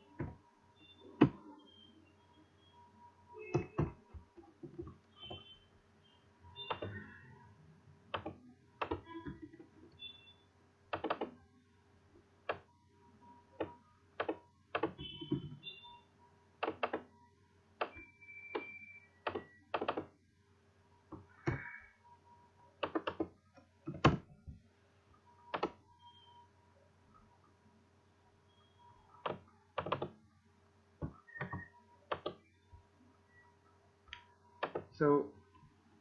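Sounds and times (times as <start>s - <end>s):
keyboard key presses: 10.9s - 11.4s, 22.8s - 24.3s, 29.2s - 30.2s, 31.0s - 32.5s.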